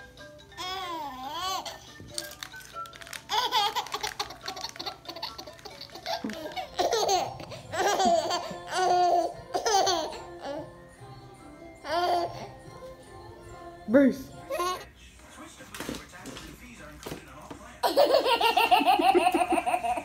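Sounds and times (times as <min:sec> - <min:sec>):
light background music: 0:00.0 - 0:20.0
baby laughing and squealing: 0:03.2 - 0:10.6.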